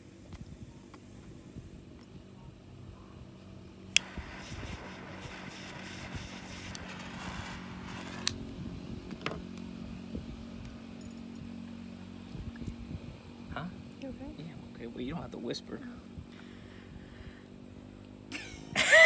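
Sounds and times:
low hum: 0.0 - 19.0
lighter clicking: 4.0 - 8.4
lighter flame hissing: 4.0 - 8.5.

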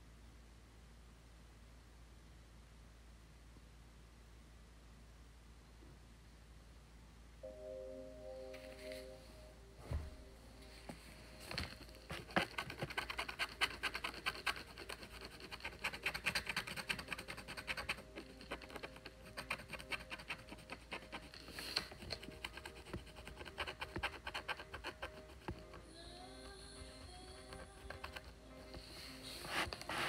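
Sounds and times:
stick scraping paper: 11.5 - 25.7, 27.6 - 30.0.

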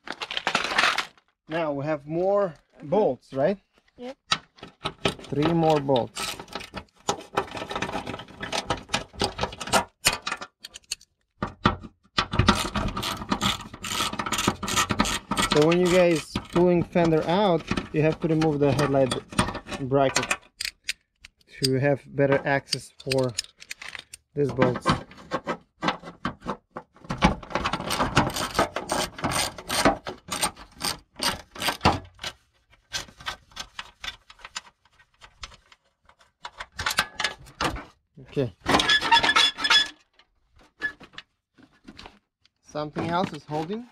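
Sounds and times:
metallic clicks of bolts loosening: 20.2 - 21.8, 22.7 - 24.3.

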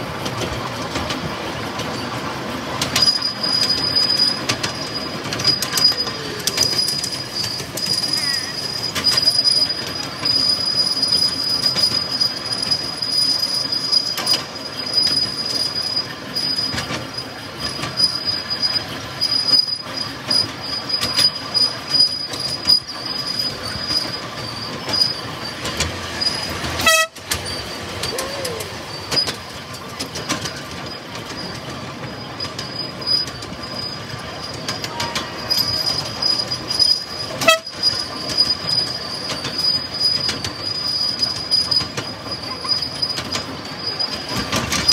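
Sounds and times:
clicks over rail joints: 0.0 - 44.9
miniature train wheel rumble: 0.0 - 44.9.

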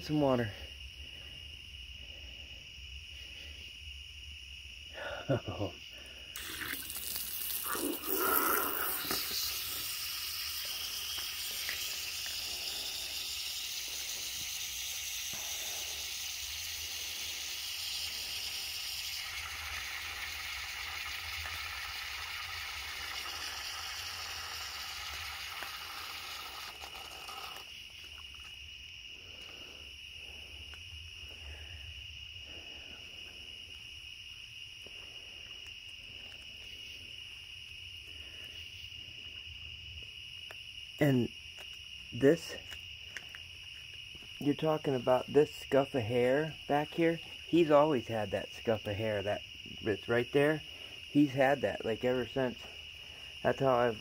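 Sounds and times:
crickets trilling: 0.0 - 54.0
broad hissing rush: 6.4 - 27.7.

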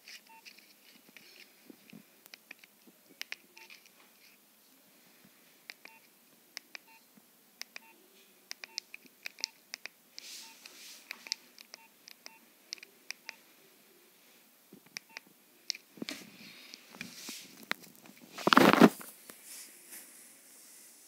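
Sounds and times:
soft hiss: 0.0 - 21.0
phone key beeps: 3.5 - 3.8, 5.8 - 6.1, 8.6 - 9.6, 11.2 - 13.4, 15.0 - 15.2.

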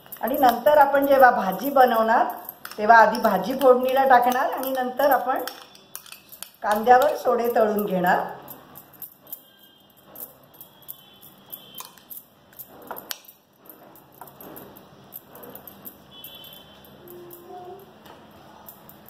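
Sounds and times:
spoon clinking against bowl: 2.2 - 7.8, 10.6 - 12.2.

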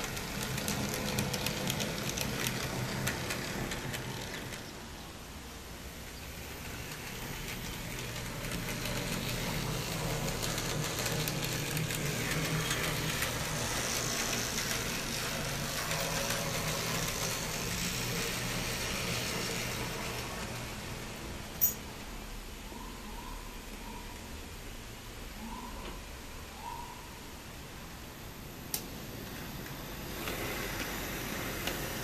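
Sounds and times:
model tram motor whirring: 0.0 - 21.8, 28.4 - 32.0.

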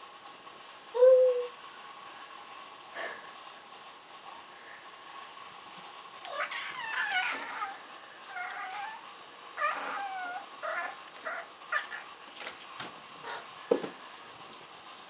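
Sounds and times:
cats meowing and yowling: 6.2 - 12.1.

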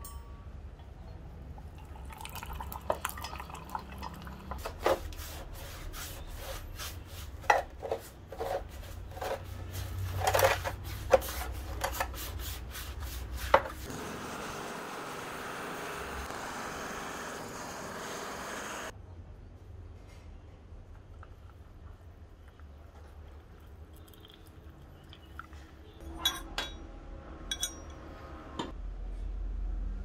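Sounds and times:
brush scrubbing metal parts: 4.6 - 13.9.

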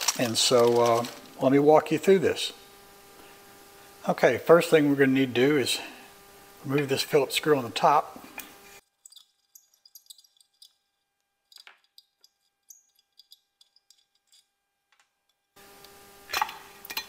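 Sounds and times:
small screw clicking: 11.5 - 14.5.

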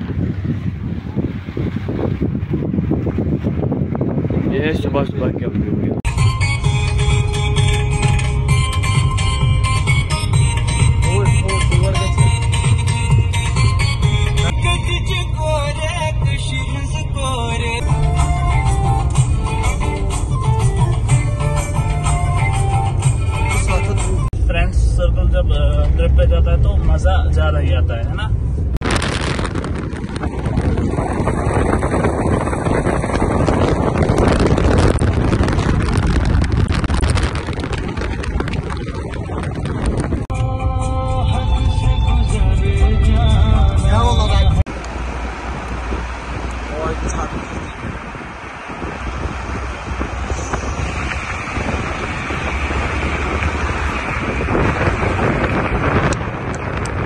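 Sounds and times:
wind rushing over microphone: 0.0 - 6.1, 24.1 - 40.8, 41.4 - 57.0
road and engine noise: 0.0 - 57.0.

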